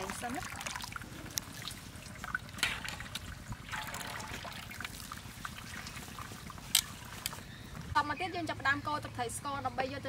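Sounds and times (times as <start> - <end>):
water trickling and dripping: 0.0 - 7.5.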